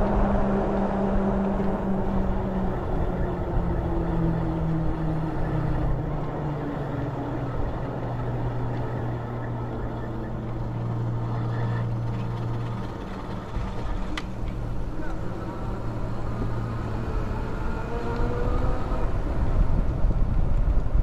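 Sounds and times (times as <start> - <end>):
electric bike motor hum: 0.0 - 21.0
wind rumble on microphone: 0.0 - 21.0.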